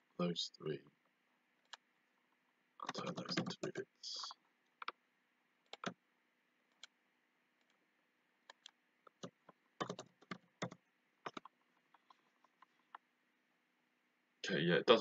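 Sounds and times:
computer mouse clicks: 1.6s - 1.8s, 5.6s - 6.0s, 6.7s - 7.0s, 8.5s - 13.0s
keyboard keys clicking: 2.8s - 3.8s, 5.7s - 6.0s, 8.5s - 13.0s.

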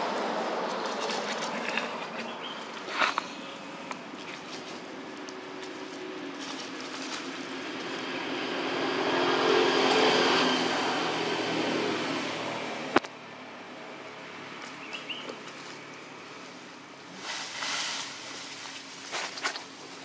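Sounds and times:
motor vehicle engine passing: 0.0s - 13.0s.

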